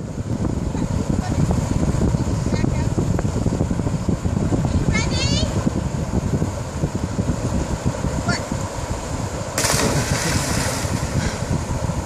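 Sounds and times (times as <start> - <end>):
wind rumble on microphone: 0.0 - 12.0
loud splash into water: 9.6 - 11.3.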